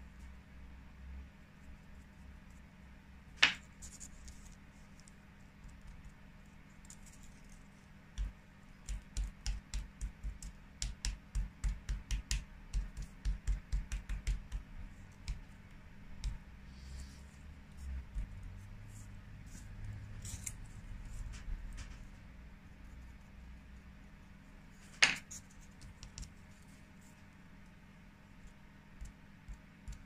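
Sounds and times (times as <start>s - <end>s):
foam pad dabbing paint: 8.1s - 19.8s.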